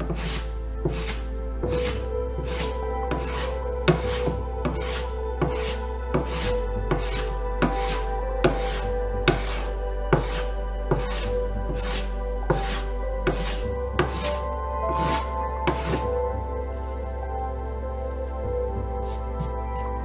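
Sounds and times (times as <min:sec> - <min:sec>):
hand plane shaving wood: 0:00.0 - 0:14.4
background music: 0:00.0 - 0:20.0.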